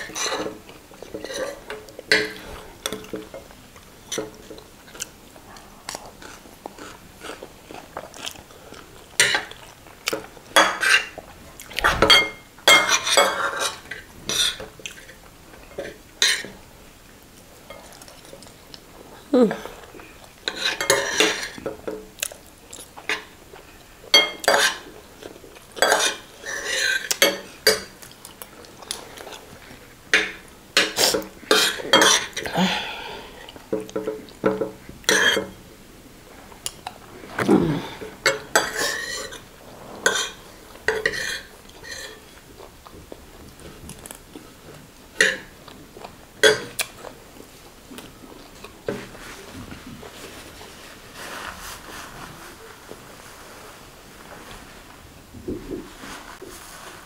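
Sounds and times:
cutlery scraping on ceramic plates: 0.0s - 3.5s, 10.5s - 11.2s, 11.8s - 16.6s, 20.4s - 22.0s, 24.1s - 24.9s, 25.8s - 28.0s, 30.1s - 32.4s, 33.8s - 35.6s, 38.2s - 42.4s, 46.4s - 46.8s.

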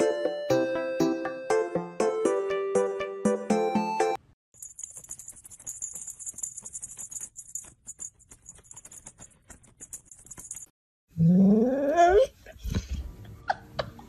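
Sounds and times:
fast high shaking rattle: 4.6s - 10.8s.

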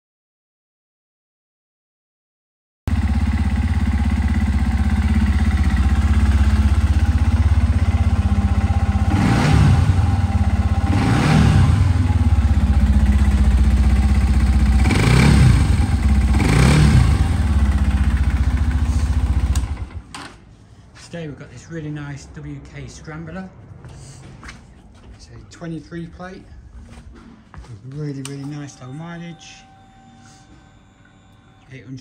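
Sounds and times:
motorcycle engine idling: 2.9s - 20.1s
throttle blips revving: 6.3s - 12.5s, 14.2s - 18.6s.

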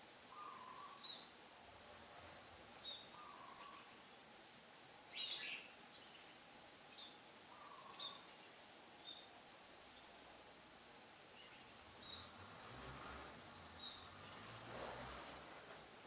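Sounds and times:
bird calling: 0.3s - 1.3s, 2.8s - 4.0s, 7.5s - 8.4s
bird chirping: 0.3s - 1.4s, 2.8s - 4.1s, 5.1s - 9.3s, 11.3s - 16.0s.

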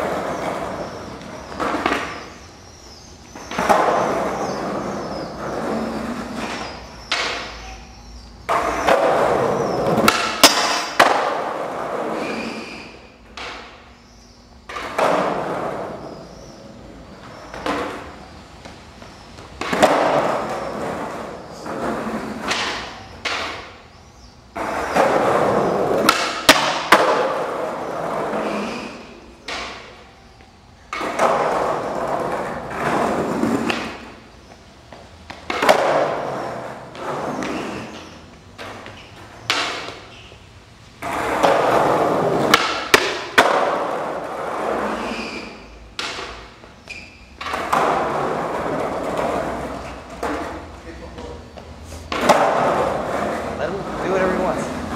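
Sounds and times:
skateboard wheels rolling: 0.0s - 54.9s
skateboard pops and knocks: 3.5s - 4.8s, 8.5s - 12.3s, 14.7s - 16.0s, 19.6s - 23.8s, 24.6s - 30.0s, 30.9s - 34.2s, 35.3s - 40.0s, 41.0s - 46.6s, 47.4s - 50.6s, 52.1s - 53.5s
skateboard scraping metal rail: 3.5s - 7.8s, 8.5s - 13.8s, 14.7s - 18.1s, 19.6s - 23.8s, 24.6s - 30.0s, 30.9s - 34.3s, 35.5s - 40.3s, 41.0s - 50.7s, 51.8s - 54.0s.

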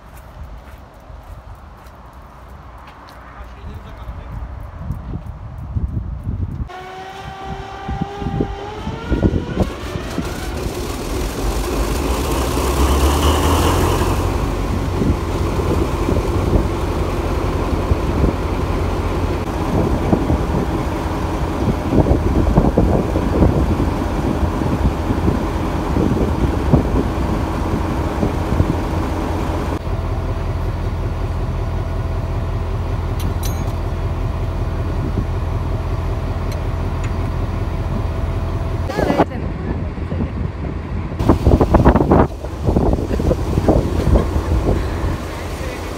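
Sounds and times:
low rumble: 2.5s - 45.9s
rising tone: 6.7s - 39.0s
steam hissing: 9.5s - 17.6s, 41.2s - 45.9s.

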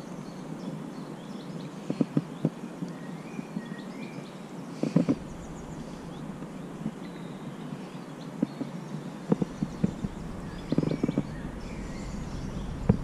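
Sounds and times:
faint birdsong: 0.0s - 13.0s
river water rushing: 5.2s - 7.9s, 9.0s - 13.0s
low knocks of metal forceps: 9.3s - 13.0s.

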